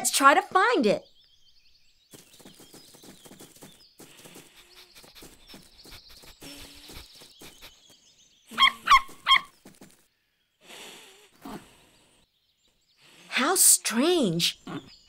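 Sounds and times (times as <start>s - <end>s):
puppy sniffing: 4.0s - 7.9s
puppy barking: 8.6s - 9.5s.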